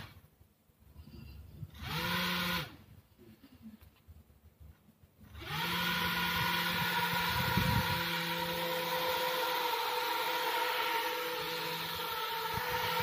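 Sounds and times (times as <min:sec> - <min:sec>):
small fan motor whirring: 0:01.6 - 0:02.8, 0:05.2 - 0:13.0.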